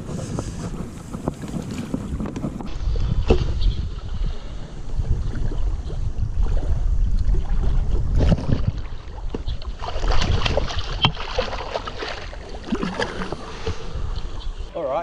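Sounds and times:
wind rumble on microphone: 0.0 - 14.8
water splashing: 5.2 - 14.7.

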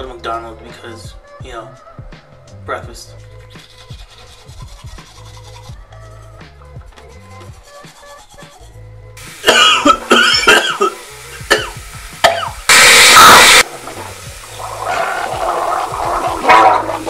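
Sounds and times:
man hacking and coughing: 9.4 - 12.6
man gargling: 14.5 - 17.0.

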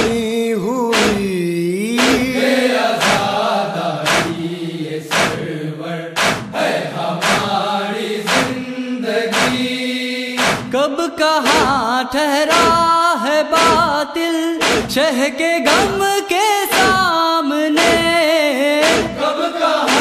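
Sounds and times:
hands striking chests: 0.9 - 1.2, 2.0 - 2.4, 3.0 - 3.2, 4.1 - 4.3, 5.1 - 5.4, 6.2 - 6.5, 7.2 - 7.5, 8.3 - 8.6, 9.3 - 9.6, 10.4 - 10.7, 11.4 - 11.8, 12.5 - 12.9, 13.6 - 13.9, 14.6 - 15.0, 16.7 - 17.1, 17.8 - 18.2, 18.8 - 19.2
men chanting: 0.9 - 17.1, 17.8 - 18.2, 18.8 - 20.0.

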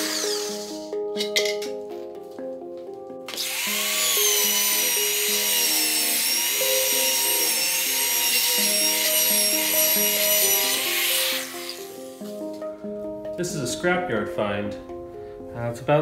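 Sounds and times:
rotary grinder on steel: 0.0 - 0.8, 3.3 - 12.2
gentle melodic background music: 0.0 - 16.0.

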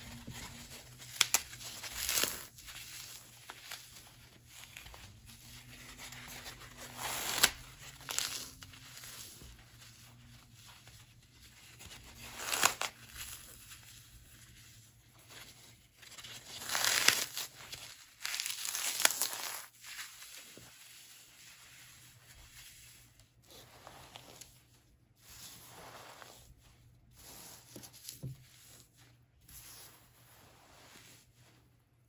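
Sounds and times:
floral foam crunching and crumbling: 16.4 - 21.5.

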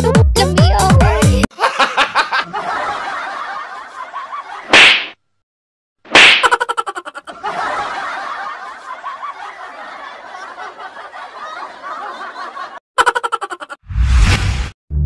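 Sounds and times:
many people laughing: 1.5 - 4.7, 6.4 - 13.8
person snickering: 6.4 - 7.4.

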